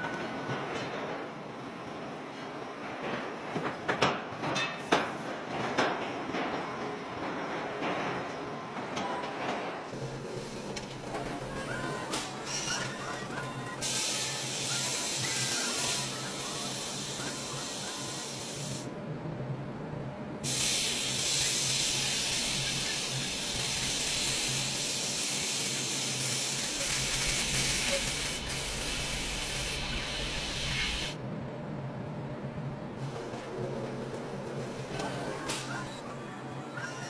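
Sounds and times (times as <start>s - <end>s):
spray guns hissing: 13.8s - 18.9s, 20.4s - 31.2s.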